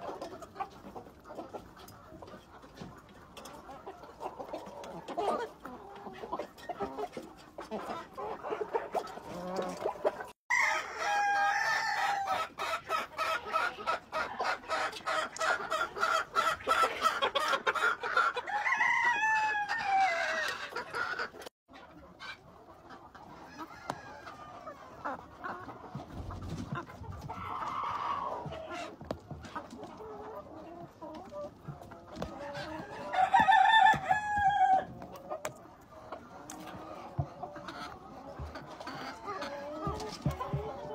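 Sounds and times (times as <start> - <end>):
chickens clucking: 0.0 - 40.9
rooster crowing: 10.5 - 12.3, 18.5 - 20.4, 33.0 - 34.9.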